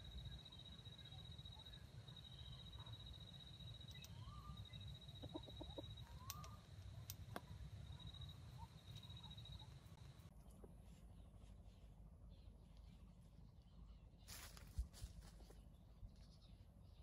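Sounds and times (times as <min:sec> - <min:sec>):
rooster clucking: 0:05.2 - 0:06.1.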